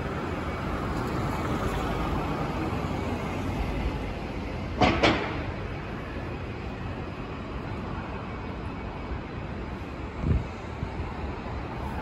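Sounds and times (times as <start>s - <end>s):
road traffic passing: 0.0s - 12.0s.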